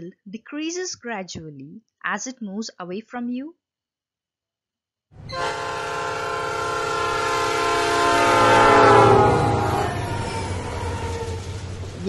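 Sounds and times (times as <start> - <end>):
train rumbling: 5.2 - 12.0
train horn: 5.3 - 11.6.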